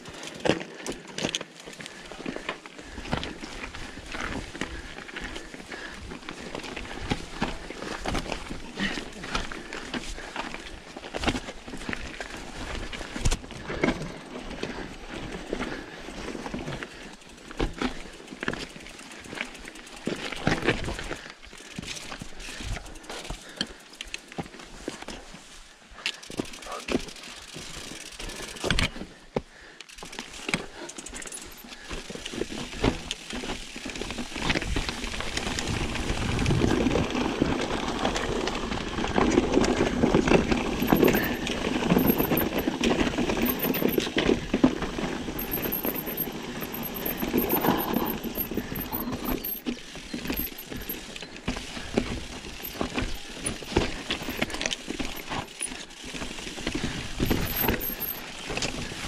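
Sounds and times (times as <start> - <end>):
bike clicking and rattling: 0.0 - 59.0
bike tyres on dirt and stones: 0.0 - 59.0.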